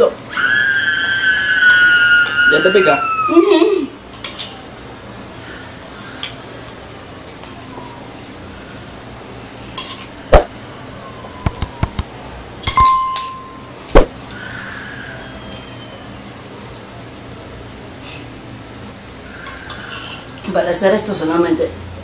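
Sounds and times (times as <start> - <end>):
spoons clinking on ceramic bowls: 12.6 - 13.7.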